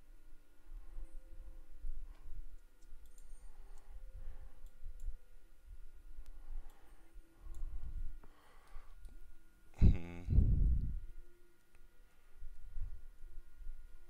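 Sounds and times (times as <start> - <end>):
low steady rumble: 0.0 - 14.0
mouse and keyboard clicks: 2.8 - 3.8.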